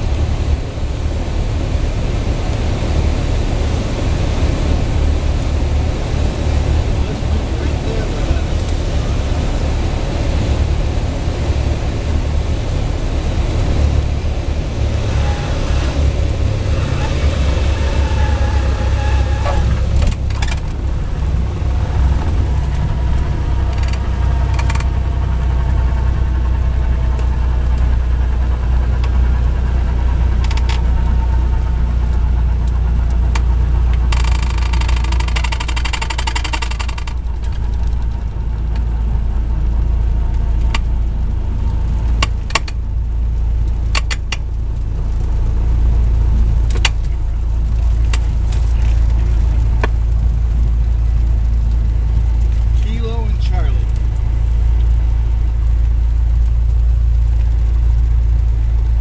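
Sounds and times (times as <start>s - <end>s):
propeller plane engine droning: 0.0s - 59.0s.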